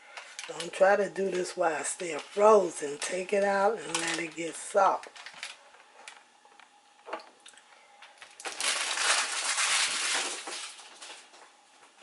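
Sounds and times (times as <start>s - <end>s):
plastic sheet crinkling: 0.3s - 6.2s, 8.2s - 11.5s.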